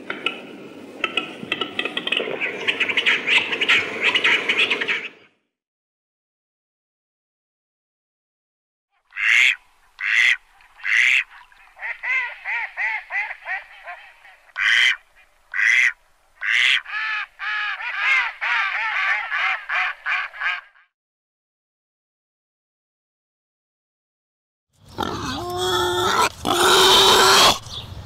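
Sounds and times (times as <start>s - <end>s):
mallard quacking: 9.1s - 18.6s.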